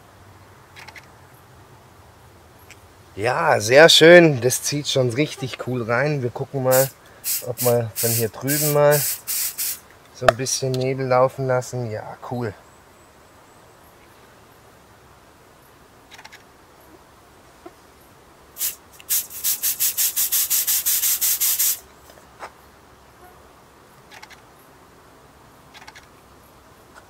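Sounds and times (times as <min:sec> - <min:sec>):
aerosol spray can hissing: 0:06.7 - 0:09.8, 0:18.6 - 0:21.8.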